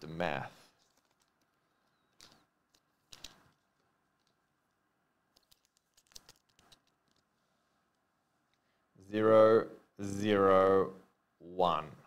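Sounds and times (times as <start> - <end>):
plastic clicks and rustles: 0.8 - 4.4, 5.3 - 7.3.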